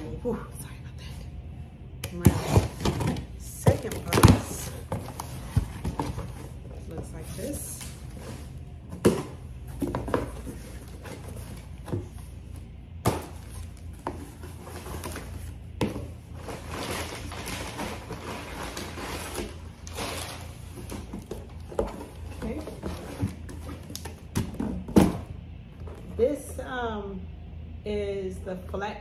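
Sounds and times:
cardboard scraping and rustling: 2.2 - 25.2.

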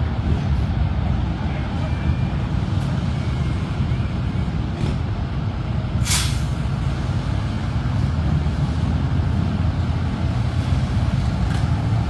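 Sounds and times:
heavy vehicle engine rumble: 0.0 - 12.0
air brakes hissing: 5.9 - 6.7.

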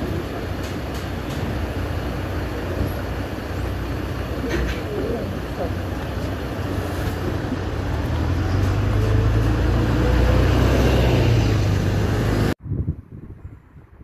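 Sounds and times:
bus engine rumble: 0.0 - 14.0
motorbikes passing: 5.0 - 12.6
faint wind on microphone: 11.2 - 14.0.

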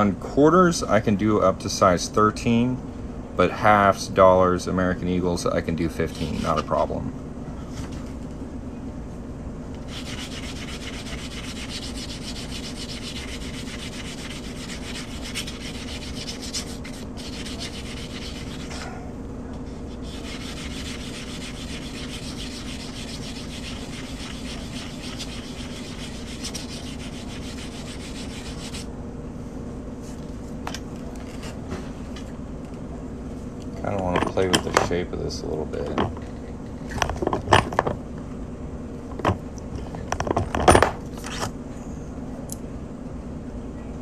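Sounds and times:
constant low hum: 0.0 - 44.0
abrasive rubbing: 19.7 - 28.9.

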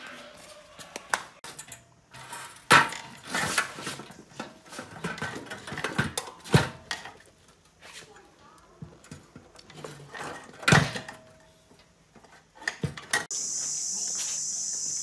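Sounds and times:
metal clanks and clatter: 1.4 - 7.7, 8.9 - 13.3.

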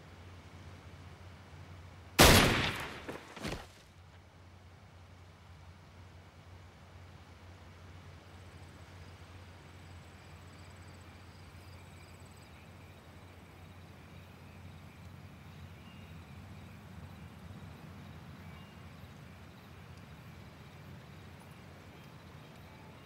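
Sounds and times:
low steady hum: 0.0 - 23.0
faint crickets trilling: 7.1 - 23.0.

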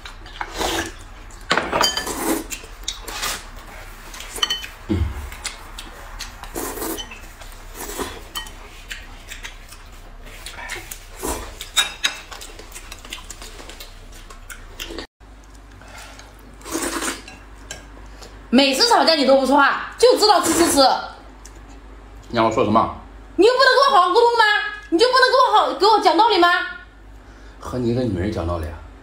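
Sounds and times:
chopsticks clinking against bowls: 4.1 - 4.8
noodles being slurped: 16.6 - 17.3.

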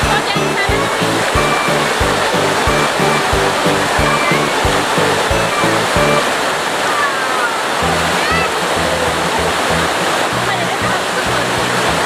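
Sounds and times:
music with bass beat: 0.0 - 6.2
waterfall rushing: 0.0 - 12.0.

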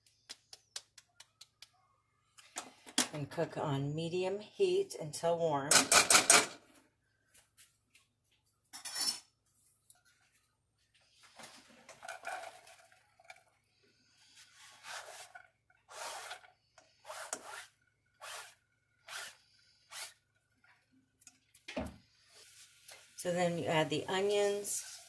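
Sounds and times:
onion scraped into skillet: 14.2 - 20.2.

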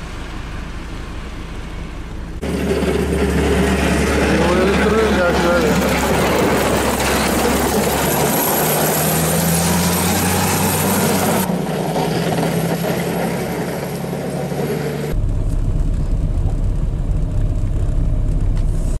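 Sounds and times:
diesel engine running: 0.0 - 19.0
blade plowing snow: 2.4 - 16.6.

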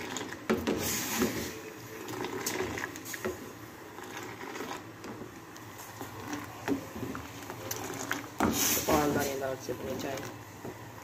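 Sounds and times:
gas burner hiss: 0.5 - 1.9, 8.4 - 11.0.

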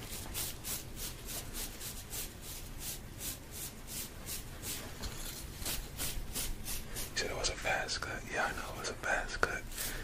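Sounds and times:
rhythmic hissing tool strokes: 5.6 - 7.3.

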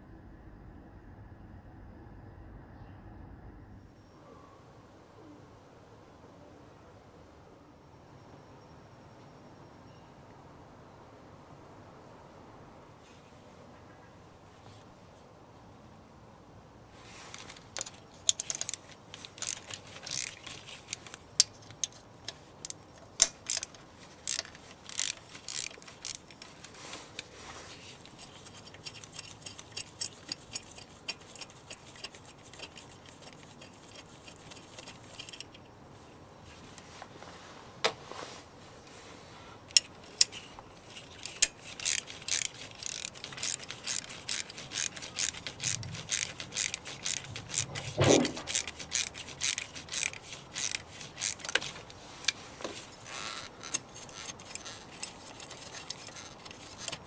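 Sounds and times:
ratchet wrench clicking: 17.3 - 27.3, 28.0 - 35.6, 39.7 - 52.4, 53.0 - 57.0.

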